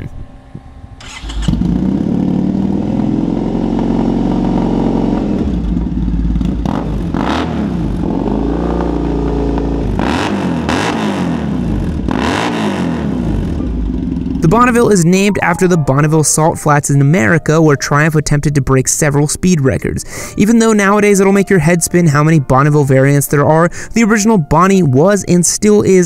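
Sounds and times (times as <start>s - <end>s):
motorcycle engine idling and revving: 0.0s - 15.4s.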